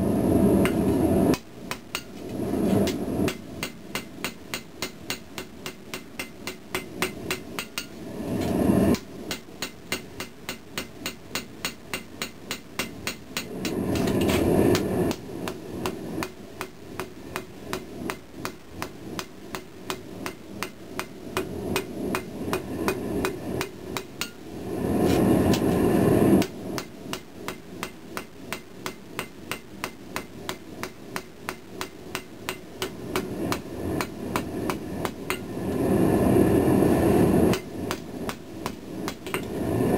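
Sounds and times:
hammer striking steel on anvil: 0:00.6 - 0:02.2, 0:02.8 - 0:08.0, 0:08.9 - 0:24.4, 0:26.4 - 0:35.5, 0:37.5 - 0:39.5.

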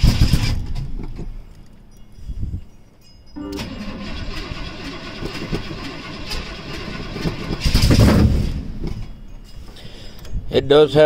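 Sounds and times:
engine running loud and uneven: 0:03.4 - 0:08.5.

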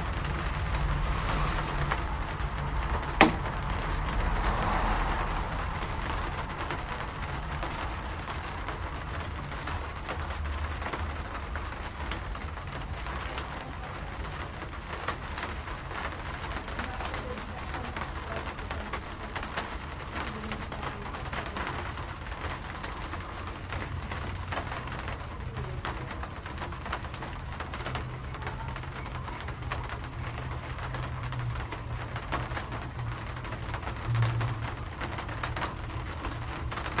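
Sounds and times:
low rumble: 0:00.0 - 0:08.6
steady rain patter: 0:00.0 - 0:37.0.

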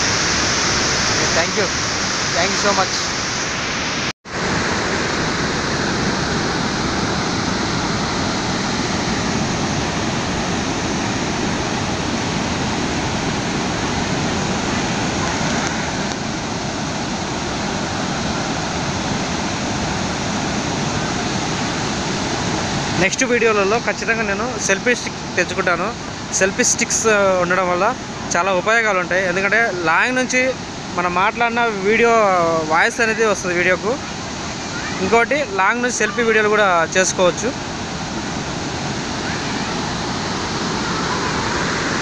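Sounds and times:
water rushing down dam spillway: 0:00.0 - 0:42.0.

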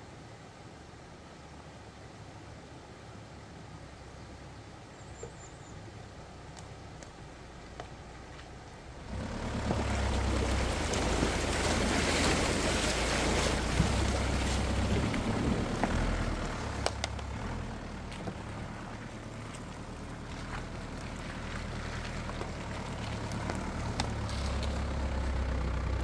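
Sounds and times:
diesel engine pulling: 0:06.1 - 0:26.0
water splashing around tyres: 0:06.3 - 0:26.0.

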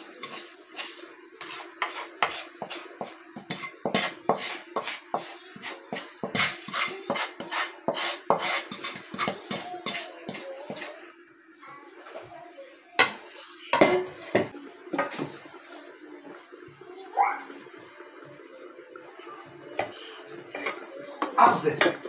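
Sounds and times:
wooden spatula scraping a pan: 0:00.0 - 0:11.0.

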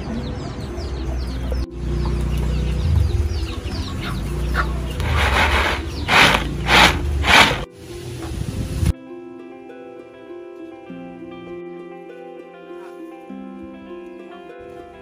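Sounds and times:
chicks peeping: 0:00.0 - 0:07.7
seeds swishing on bamboo tray: 0:05.0 - 0:07.7.

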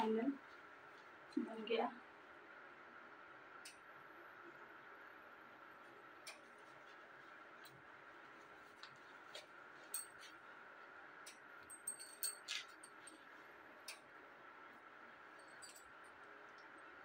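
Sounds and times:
faint room hum: 0:00.0 - 0:17.0
bangles clinking: 0:11.7 - 0:13.2, 0:15.3 - 0:16.1.

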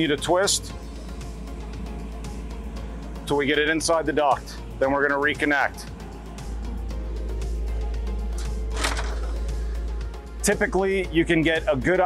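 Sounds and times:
background music with low bass: 0:00.0 - 0:12.0.

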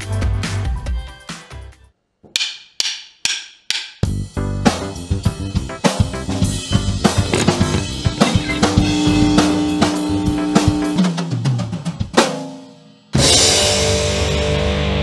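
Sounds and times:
drum kit beat: 0:02.4 - 0:13.9
distorted electric guitar chord: 0:08.0 - 0:11.1.

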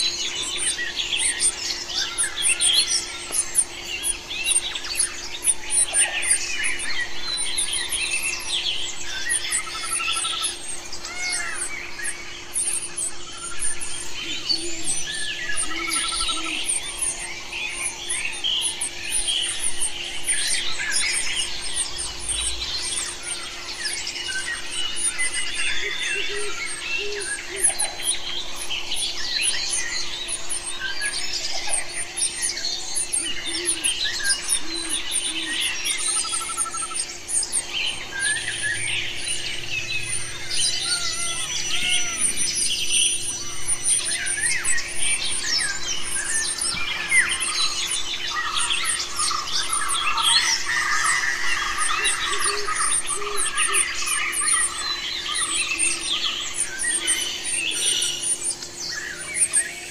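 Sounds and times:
birds chirping: 0:00.0 - 0:59.9
faint steady hum: 0:00.0 - 0:59.9.

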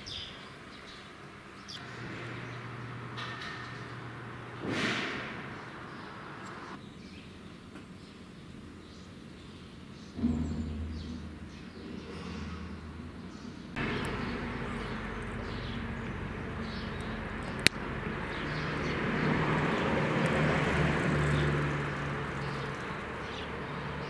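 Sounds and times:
low engine hum: 0:01.8 - 0:06.8, 0:12.5 - 0:24.0.

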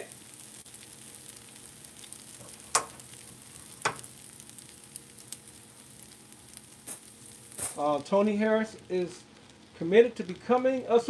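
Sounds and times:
food sizzling: 0:00.0 - 0:11.0
sharp pops: 0:02.4 - 0:03.2, 0:03.8 - 0:04.2.

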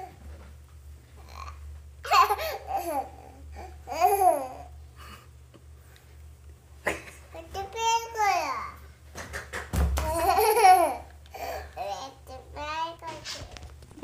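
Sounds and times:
steady low hum: 0:00.0 - 0:14.0
toddler laughing and babbling: 0:01.2 - 0:04.8, 0:10.0 - 0:13.4.

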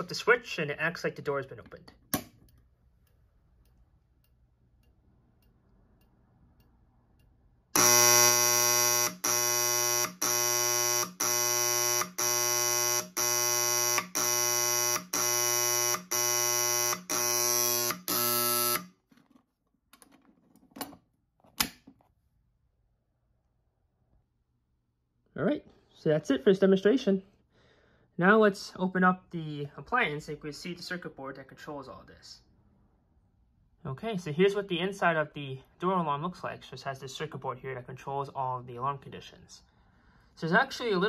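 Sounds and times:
door alarm horn blasts: 0:07.8 - 0:18.9.

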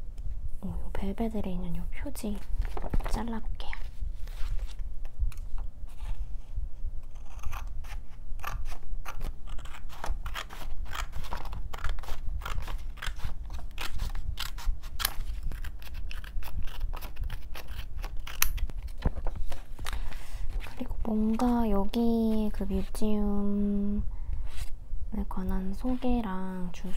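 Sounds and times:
scissors snipping paper: 0:07.1 - 0:18.7.

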